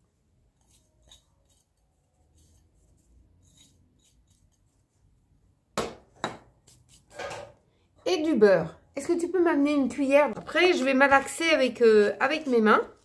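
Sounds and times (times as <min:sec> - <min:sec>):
utensils scraping and rustling: 0:00.6 - 0:04.8, 0:06.6 - 0:07.6.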